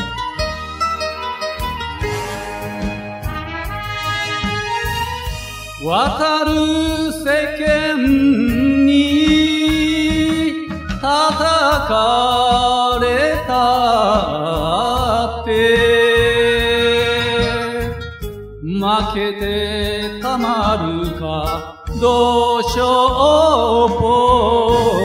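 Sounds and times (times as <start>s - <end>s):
backing band with drum beat: 0.0s - 25.0s
person singing: 5.8s - 25.0s.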